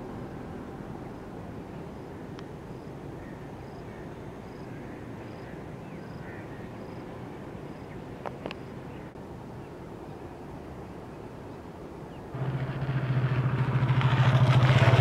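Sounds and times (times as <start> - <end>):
low background rumble: 0.0 - 2.4.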